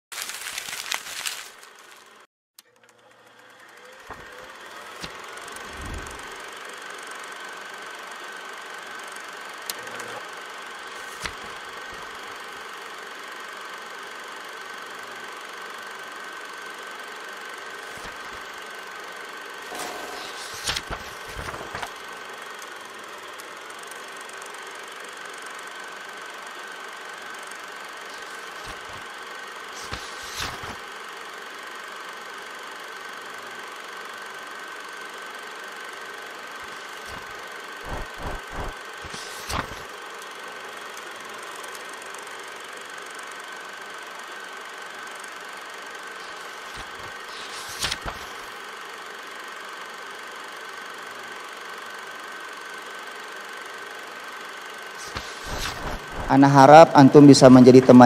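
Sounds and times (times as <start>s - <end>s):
crackly rustling noise with ticks: 0.2s - 2.2s
mechanical hum with high whine: 0.2s - 58.0s.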